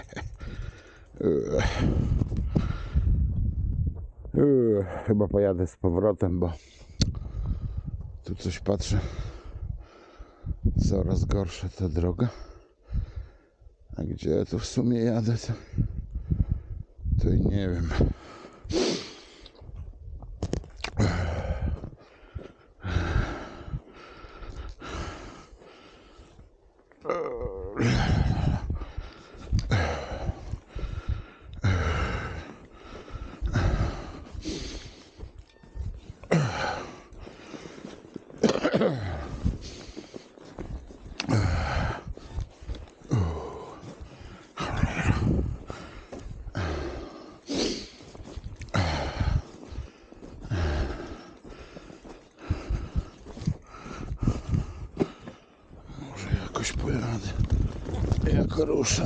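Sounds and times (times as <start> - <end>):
man breathing hard: 0.2 - 3.3, 6.6 - 8.0, 9.0 - 10.6, 12.4 - 13.8, 15.6 - 17.0, 17.9 - 19.7, 20.9 - 26.7, 27.7 - 38.3, 39.0 - 56.0.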